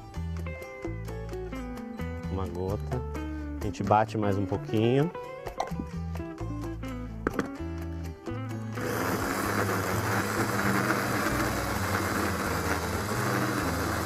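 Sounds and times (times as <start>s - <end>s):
background music: 0.0s - 14.0s
electric food chopper running: 8.8s - 14.0s.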